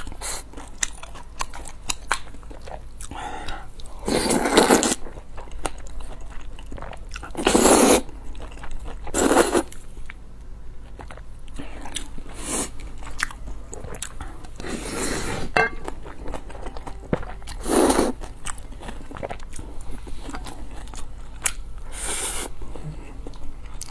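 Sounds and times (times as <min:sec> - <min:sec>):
person slurping noodles: 0:14.6 - 0:15.6, 0:17.6 - 0:18.2.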